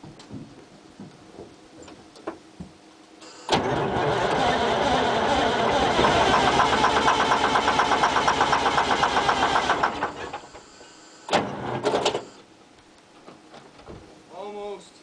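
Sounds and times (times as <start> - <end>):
diesel engine cranking on starter: 3.5 - 10.5, 11.3 - 12.3.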